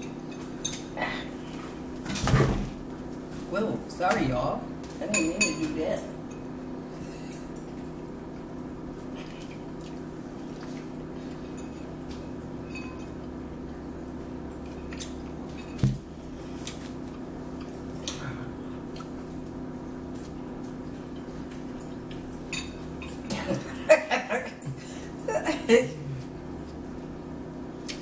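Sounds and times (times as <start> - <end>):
steady low hum: 0.0 - 28.0
soft eating sounds: 2.8 - 23.8, 24.5 - 28.0
metal spoon clinking on bowls: 5.1 - 6.5, 22.5 - 23.2.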